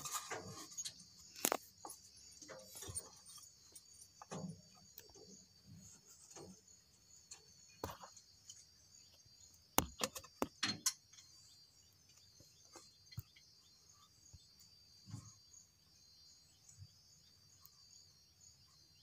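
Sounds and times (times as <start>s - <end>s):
sharp clicks and knocks: 9.8s - 11.4s.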